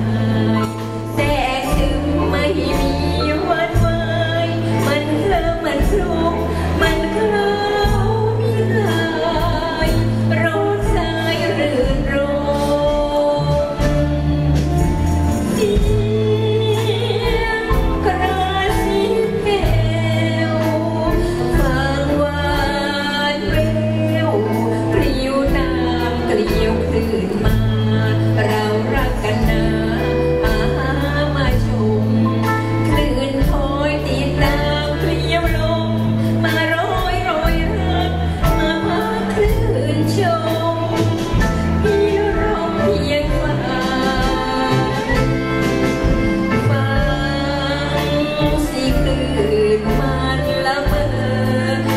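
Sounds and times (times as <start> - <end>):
live band playing: 0.0 - 51.9
woman singing into microphone: 0.0 - 51.9.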